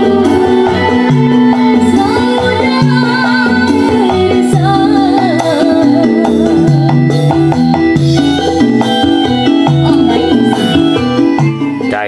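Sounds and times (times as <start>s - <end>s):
song through loudspeaker: 0.0s - 12.0s.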